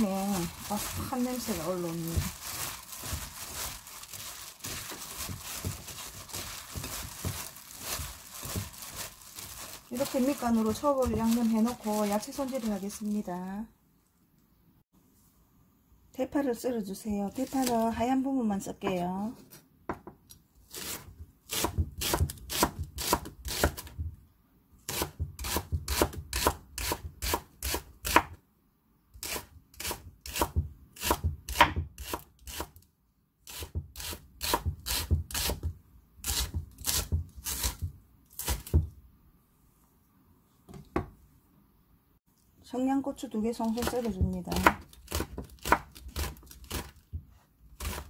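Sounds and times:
knife chopping on wooden board: 0:20.8 - 0:24.1, 0:29.2 - 0:32.7, 0:43.8 - 0:48.0.

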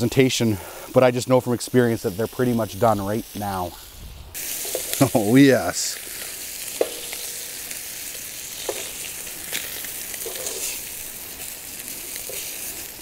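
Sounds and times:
fish sizzling in a pan: 0:00.0 - 0:13.0
metal tongs clicking on pan: 0:06.8 - 0:07.5, 0:09.5 - 0:10.7.

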